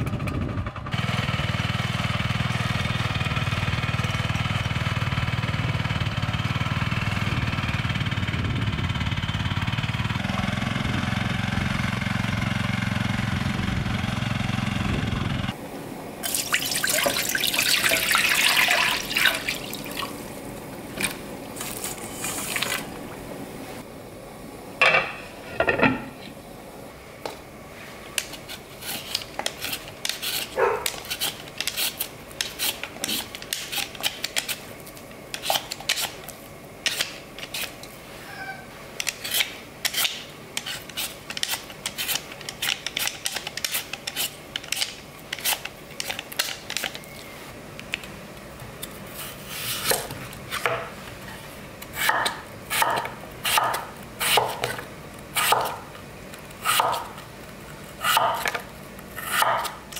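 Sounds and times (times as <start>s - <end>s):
peeler scraping vegetable skin: 28.1s - 47.2s, 48.8s - 55.8s, 56.5s - 59.9s.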